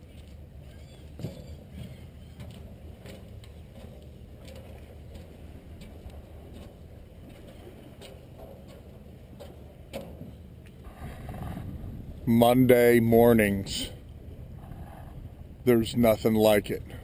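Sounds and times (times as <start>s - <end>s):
steady low rumble: 0.0s - 17.0s
light ticks and knocks: 2.4s - 10.8s.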